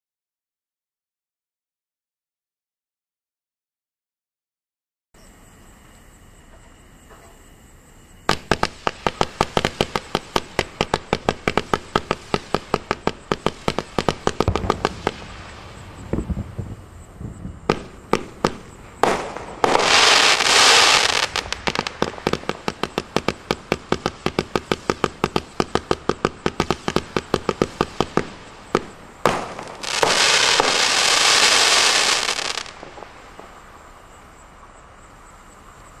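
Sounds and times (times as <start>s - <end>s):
fireworks hissing: 8.2s - 34.2s
fireworks shots: 8.3s - 33.9s.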